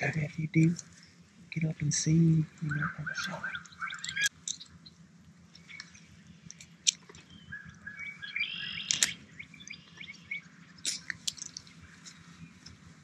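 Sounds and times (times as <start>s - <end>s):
songbirds chirping: 0.0s - 13.0s
sharp clicks: 8.8s - 10.1s.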